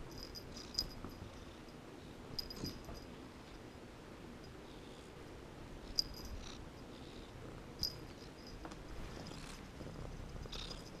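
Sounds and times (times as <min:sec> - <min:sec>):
metal collar tag tinkling: 0:00.0 - 0:03.2, 0:05.9 - 0:06.9, 0:07.8 - 0:09.5.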